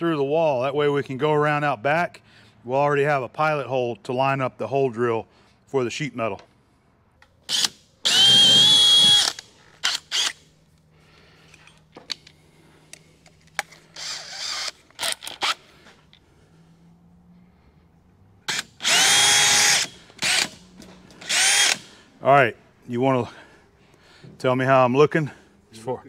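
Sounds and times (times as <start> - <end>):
cordless drill running: 7.5 - 10.5, 13.9 - 15.6, 18.5 - 22.0.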